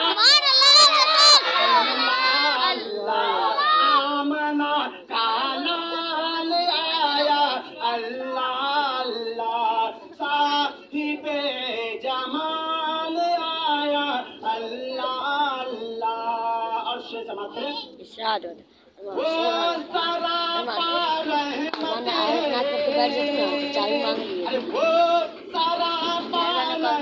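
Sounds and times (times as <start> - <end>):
man singing devotional song: 2.0 - 18.1, 19.0 - 27.0.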